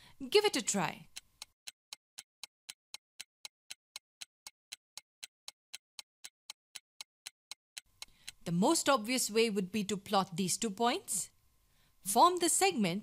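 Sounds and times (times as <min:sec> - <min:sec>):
timer ticking: 0:00.2 - 0:08.9.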